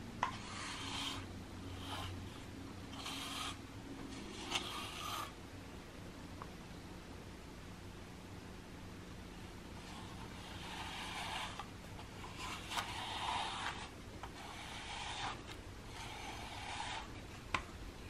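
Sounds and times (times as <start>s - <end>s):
brush rasping through cat fur: 0.2s - 5.4s, 9.8s - 17.4s.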